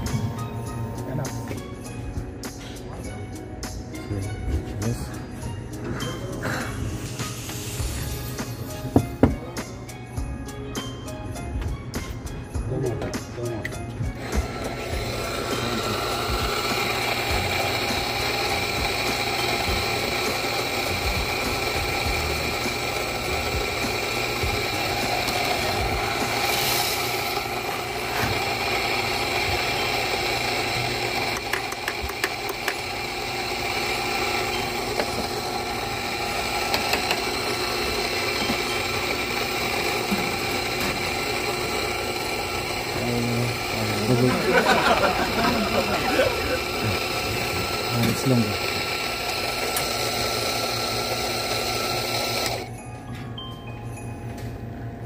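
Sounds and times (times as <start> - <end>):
steady motor hum: 0.0 - 12.4, 13.7 - 55.0.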